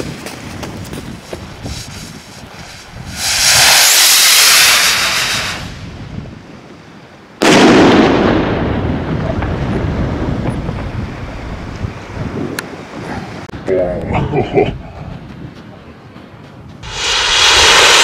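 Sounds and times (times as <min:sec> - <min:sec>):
firework rocket hissing: 0:01.6 - 0:06.0, 0:16.8 - 0:18.0
rumbling echo: 0:16.8 - 0:18.0.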